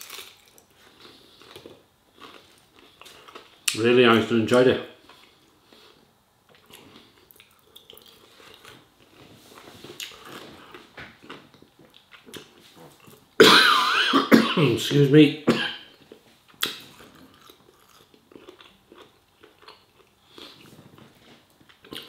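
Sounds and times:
faint chewing: 0.0s - 3.8s, 5.0s - 13.3s, 15.9s - 22.0s
person coughing: 13.4s - 15.9s.

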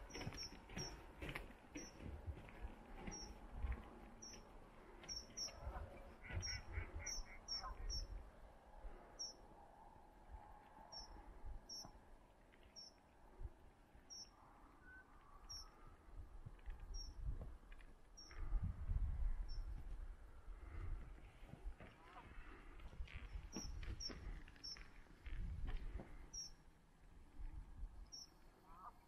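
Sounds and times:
small birds chirping: 0.0s - 8.2s, 10.9s - 12.0s, 12.6s - 13.1s, 14.0s - 15.8s, 18.1s - 18.4s, 22.4s - 26.7s, 28.0s - 28.6s.

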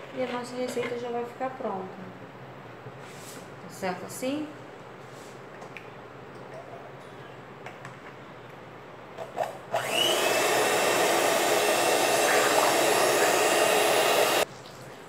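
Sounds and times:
electric hand mixer whisking: 9.7s - 14.5s.

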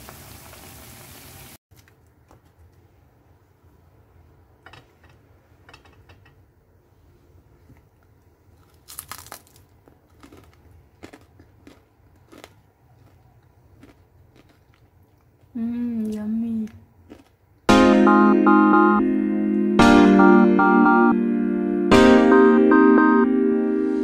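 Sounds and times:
crispy fried food crunching: 8.4s - 16.2s, 17.0s - 17.7s.

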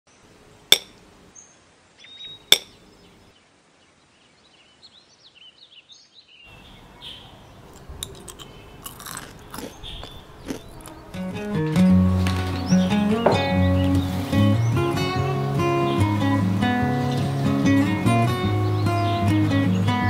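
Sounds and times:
faint bird chirps: 1.3s - 8.9s
crunchy chewing of candy: 7.6s - 11.4s.

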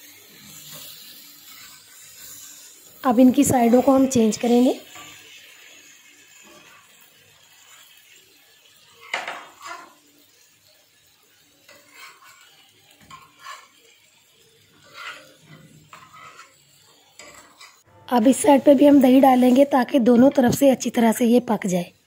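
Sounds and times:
metal tongs scraping iron pan: 0.7s - 2.4s, 9.0s - 10.0s, 11.7s - 13.8s, 14.7s - 16.6s, 17.2s - 17.8s.

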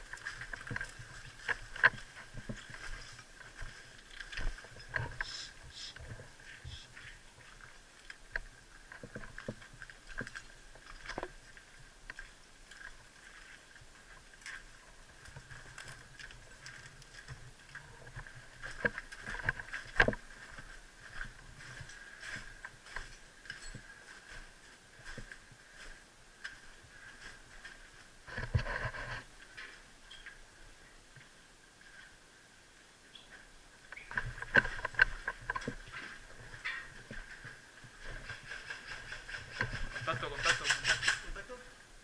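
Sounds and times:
rustle of gear: 0.0s - 30.4s, 33.2s - 41.6s
small knocks and clicks: 18.1s - 20.2s.

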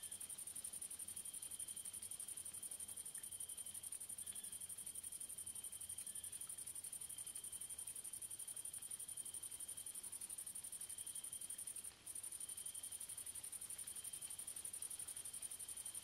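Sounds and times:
steady high insect tone: 0.0s - 16.0s.

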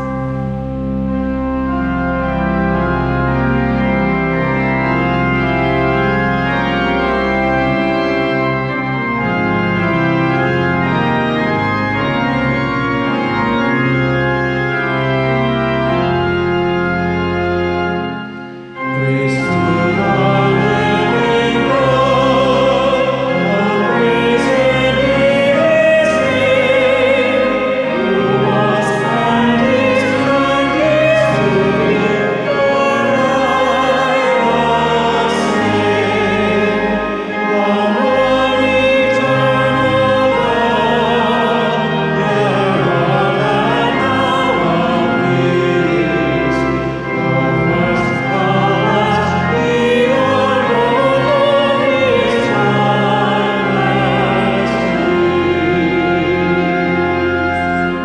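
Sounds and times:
organ playing chords: 0.0s - 58.0s
person singing with vibrato: 18.8s - 58.0s.

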